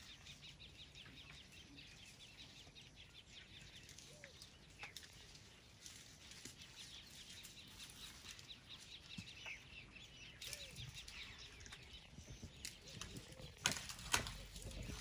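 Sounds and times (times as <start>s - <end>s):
faint birds chirping: 0.0s - 15.0s.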